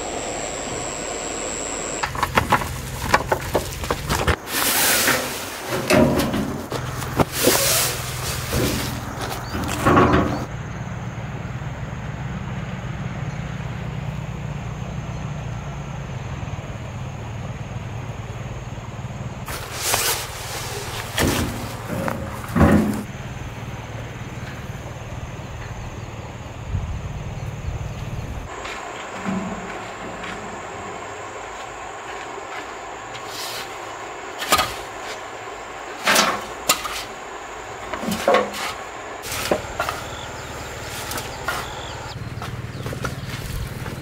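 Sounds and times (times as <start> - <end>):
low hum with hiss: 0.0 - 11.8
sawdust rattling and pattering: 2.0 - 10.5, 19.5 - 26.6, 27.2 - 44.0
short knocks and scrapes: 2.0 - 10.5, 19.5 - 23.1, 28.5 - 31.2, 36.0 - 37.2, 37.9 - 43.3.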